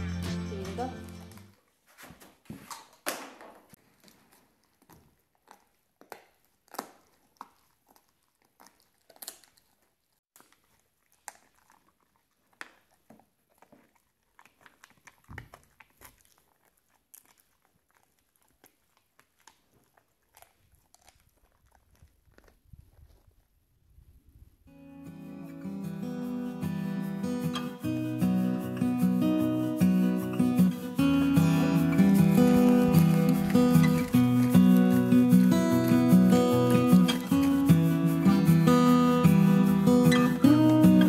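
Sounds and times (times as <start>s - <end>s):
dog gnawing on chew: 3.8s - 23.6s, 30.3s - 38.9s.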